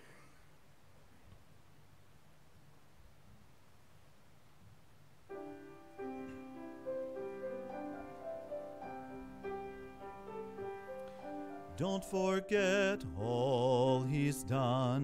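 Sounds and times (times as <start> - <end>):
piano chords and melody: 5.3 - 15.0
gospel singing: 11.1 - 15.0.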